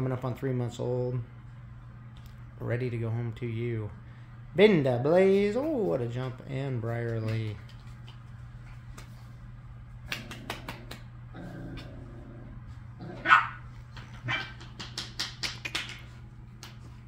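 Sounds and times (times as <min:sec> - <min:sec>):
puppy barking: 0:13.0 - 0:14.6.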